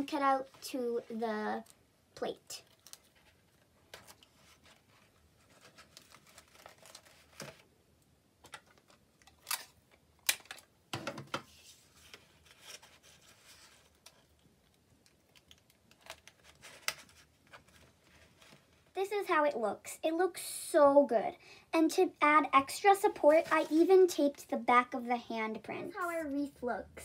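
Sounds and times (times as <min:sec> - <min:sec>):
paper and tape rustling: 0:02.5 - 0:07.7, 0:11.5 - 0:19.0, 0:22.8 - 0:24.7.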